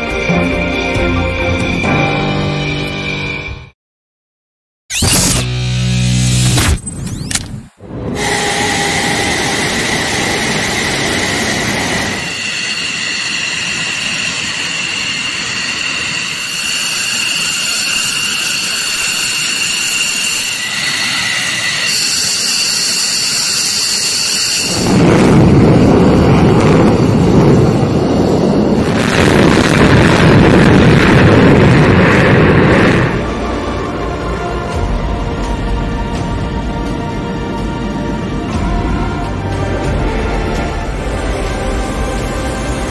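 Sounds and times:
jet turbine whine: 0:08.2 - 0:34.7
deep jet roar: 0:24.7 - 0:34.2.

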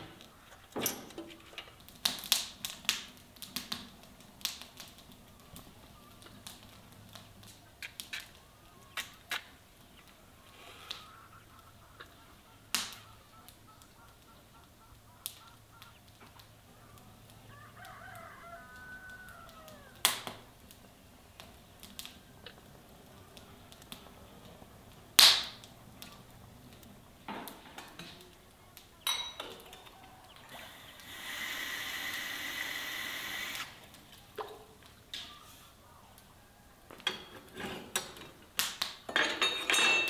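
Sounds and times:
wood fire crackling and popping: 0:00.0 - 0:35.5, 0:37.0 - 0:40.0
rooster crowing: 0:17.4 - 0:20.1, 0:29.6 - 0:33.8, 0:35.4 - 0:37.1.

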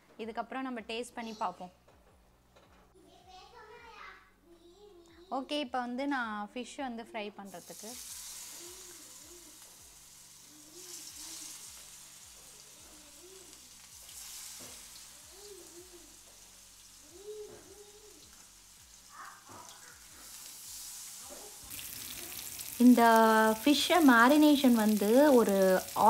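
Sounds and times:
fish sizzling in hot oil: 0:07.5 - 0:26.0.

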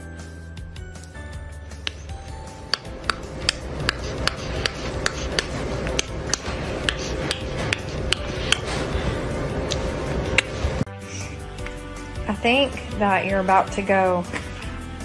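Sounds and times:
kissing smacks: 0:02.8 - 0:08.7.

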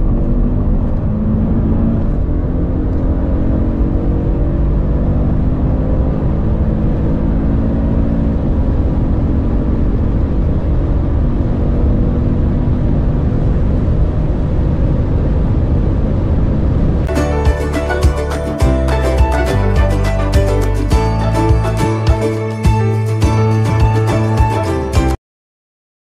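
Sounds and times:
car engine at full throttle: 0:00.0 - 0:24.9
music: 0:17.1 - 0:25.2.

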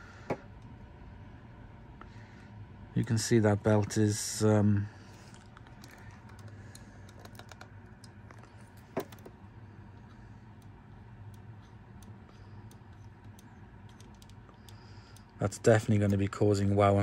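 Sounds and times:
low steady hum: 0:00.0 - 0:17.0
tweezers clicking on plastic parts: 0:05.6 - 0:09.3, 0:10.0 - 0:15.4.

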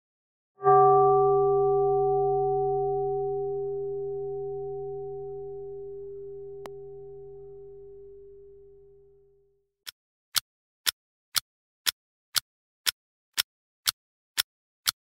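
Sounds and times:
bell-like tone ringing: 0:00.6 - 0:09.5.

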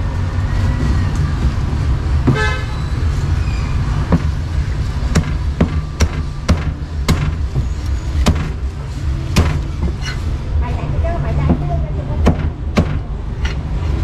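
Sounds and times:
road traffic rumble: 0:00.0 - 0:14.0
vehicle horn toot: 0:02.3 - 0:02.8
cleaver chopping on a block: 0:04.1 - 0:04.4, 0:05.1 - 0:07.5, 0:08.2 - 0:08.6, 0:09.4 - 0:09.7, 0:12.2 - 0:13.1.

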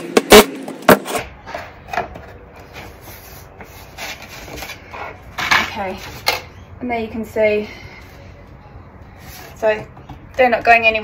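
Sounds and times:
wood rubbing and scraping: 0:00.9 - 0:06.4.

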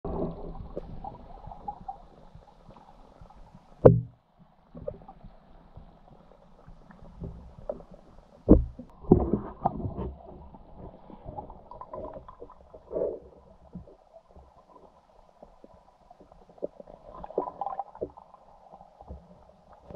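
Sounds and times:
muffled underwater rumble: 0:00.0 - 0:19.9
dull underwater knocks: 0:03.8 - 0:05.1, 0:07.2 - 0:12.6.

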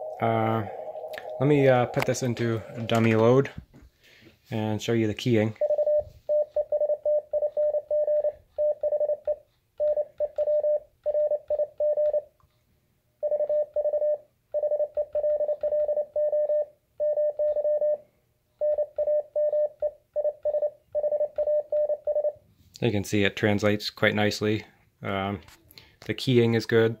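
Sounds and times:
morse code beeps: 0:00.0 - 0:03.3, 0:05.6 - 0:12.2, 0:13.2 - 0:18.0.

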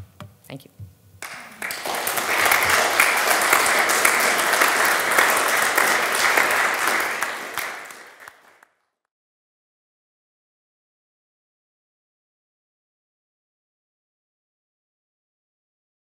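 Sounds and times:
audience applauding: 0:01.2 - 0:08.7.

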